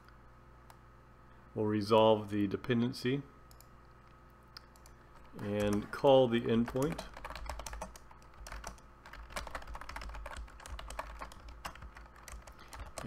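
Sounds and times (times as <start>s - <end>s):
typing on computer keyboard: 4.6s - 13.0s.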